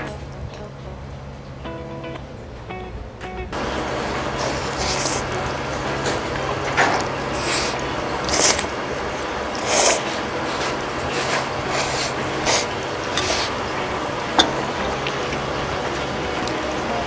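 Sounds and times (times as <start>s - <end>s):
background hum: 0.0s - 17.0s
noodles being slurped: 6.9s - 13.7s.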